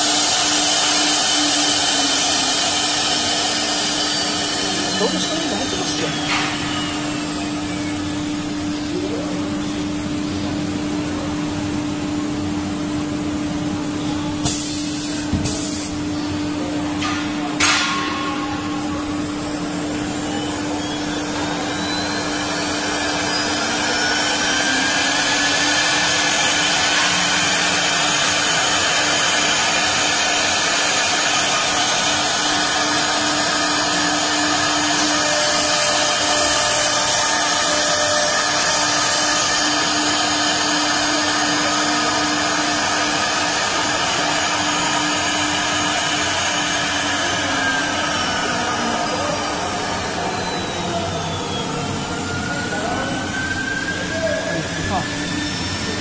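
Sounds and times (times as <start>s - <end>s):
wood router motor humming: 0.0s - 10.4s, 19.5s - 56.0s
high machine whine: 0.0s - 56.0s.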